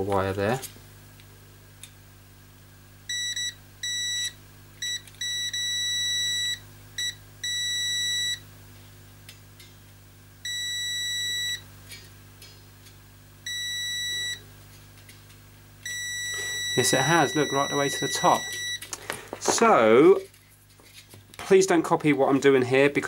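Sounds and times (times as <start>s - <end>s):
multimeter continuity beeps: 3.1s - 8.4s, 10.4s - 11.7s, 13.4s - 14.4s, 15.8s - 18.8s.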